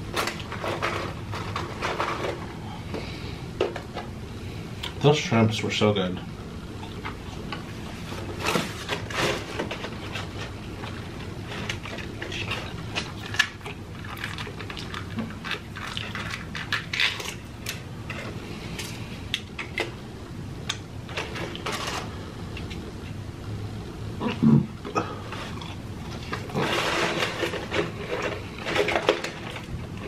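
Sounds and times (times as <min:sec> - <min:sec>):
chewing crispy fried food: 0:10.5 - 0:17.8.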